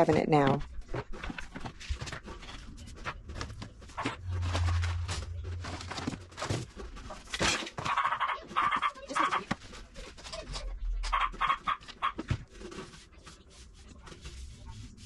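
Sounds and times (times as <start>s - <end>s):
low hum: 3.0s - 7.4s.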